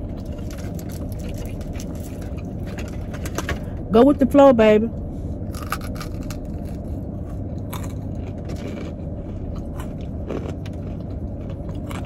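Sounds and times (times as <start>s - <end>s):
chewing fried chicken: 0.0s - 3.4s, 5.5s - 12.0s
steady low hum: 0.0s - 12.0s
crisp crunches: 7.6s - 12.0s.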